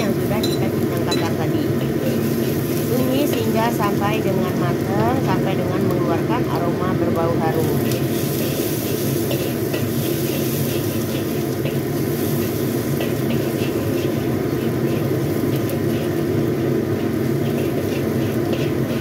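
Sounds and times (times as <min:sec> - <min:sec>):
aromatics frying in oil: 0:00.0 - 0:19.0
metal spatula scraping wok: 0:00.9 - 0:03.9, 0:07.7 - 0:19.0.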